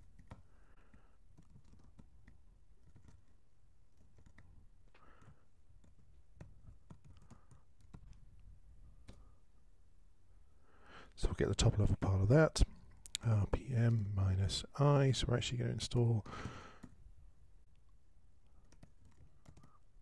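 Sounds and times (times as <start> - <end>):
keyboard typing: 0.0 - 8.3, 9.0 - 9.3, 18.4 - 19.8.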